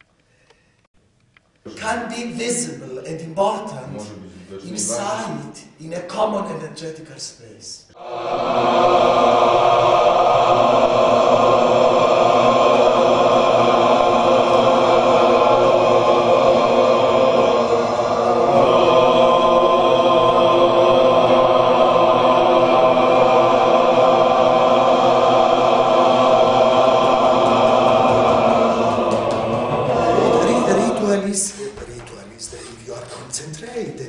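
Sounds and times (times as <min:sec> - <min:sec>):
group chanting vocal drone: 0:07.9 - 0:31.8.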